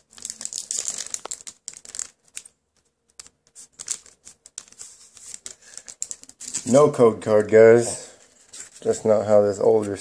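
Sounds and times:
foil wrapper crinkling: 0.0s - 6.8s
cards being handled: 0.1s - 6.8s, 8.2s - 10.0s.

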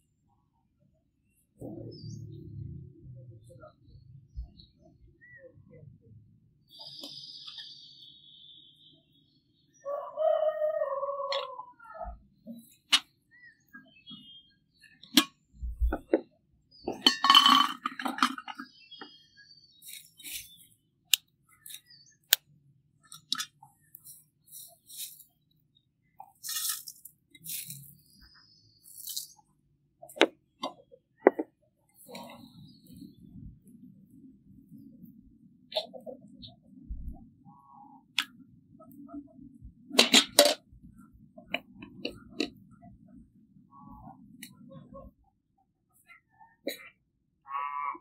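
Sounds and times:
papery rustles of dry tea: 19.8s - 20.7s, 24.0s - 25.4s, 26.4s - 28.1s.

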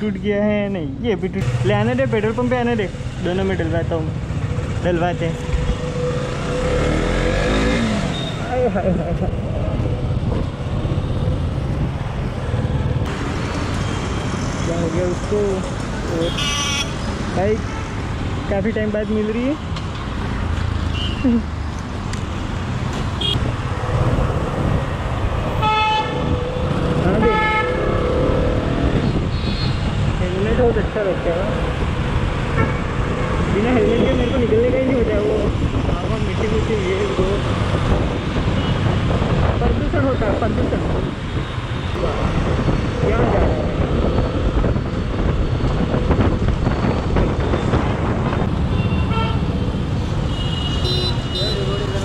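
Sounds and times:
road traffic: 0.0s - 52.0s
wind buffeting microphone: 9.1s - 13.2s, 23.4s - 50.3s
vehicle horn honking: 16.2s - 17.0s, 25.6s - 26.2s, 27.2s - 27.8s, 48.7s - 49.5s, 50.3s - 51.9s.

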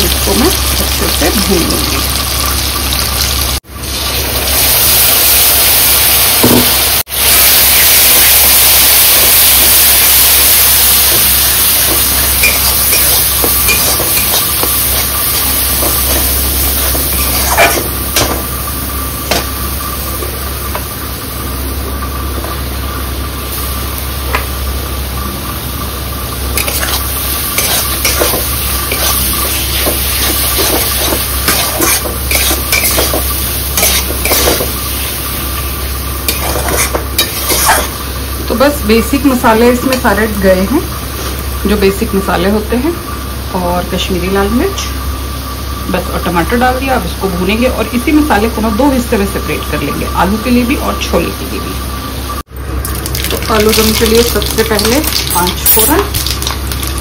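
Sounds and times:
onion sizzling in hot oil: 0.0s - 57.0s
spatula scraping a pan: 17.1s - 17.9s, 27.6s - 33.2s, 33.8s - 34.7s, 36.3s - 37.9s.

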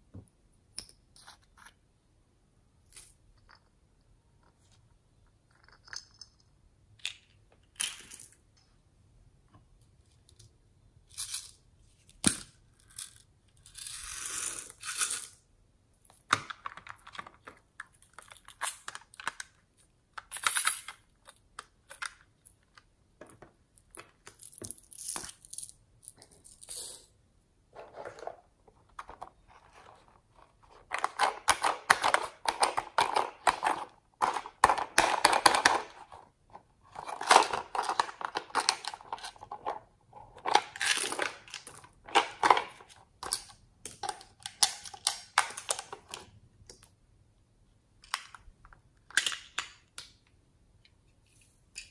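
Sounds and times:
plastic toys clicking and knocking: 16.0s - 27.1s, 30.8s - 47.0s, 48.0s - 51.0s.

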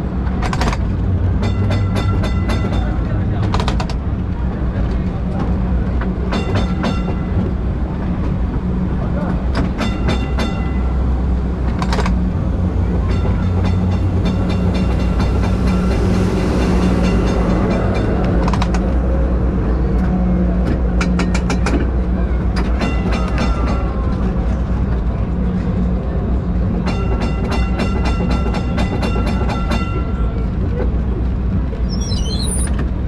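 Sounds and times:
tram wheels rumbling: 0.0s - 33.0s
clicks and rattles over rails: 0.2s - 7.6s, 11.6s - 12.3s.

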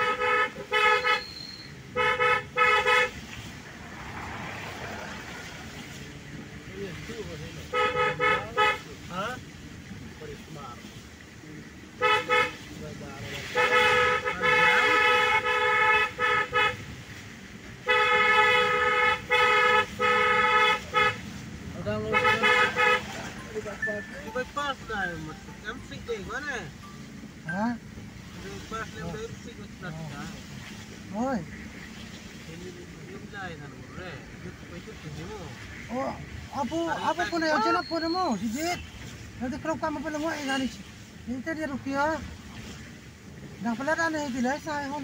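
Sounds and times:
vehicle horn honking: 0.0s - 3.2s, 7.7s - 8.8s, 12.0s - 12.6s, 13.5s - 16.9s, 17.8s - 25.7s
traffic road and engine noise: 0.0s - 45.0s.

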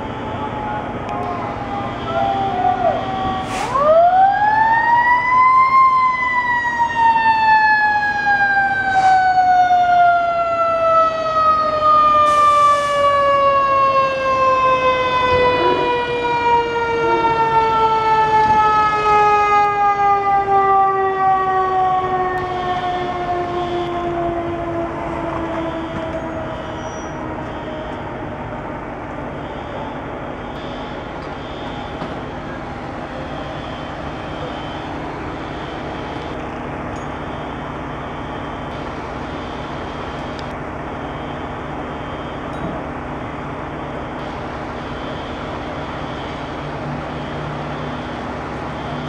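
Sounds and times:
fire engine siren: 0.0s - 49.0s
short hiss: 3.4s - 3.8s.

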